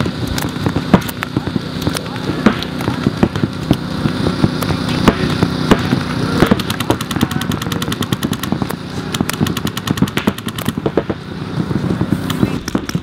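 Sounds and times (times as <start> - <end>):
paintball markers firing: 0.0 - 11.2.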